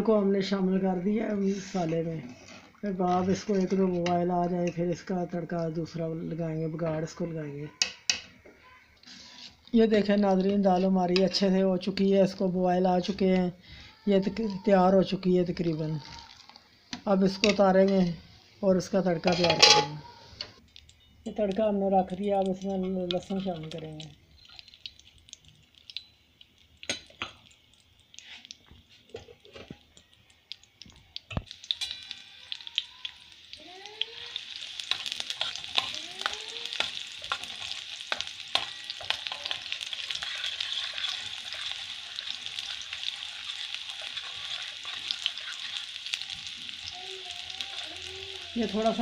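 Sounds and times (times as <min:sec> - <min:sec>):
garlic sizzling in hot oil: 0:20.7 - 0:49.0.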